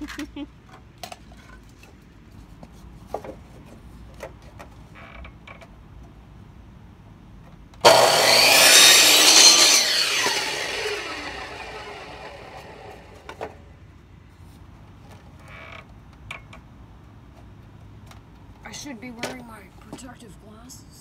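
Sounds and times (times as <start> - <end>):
power saw cutting wood: 7.8 - 13.6.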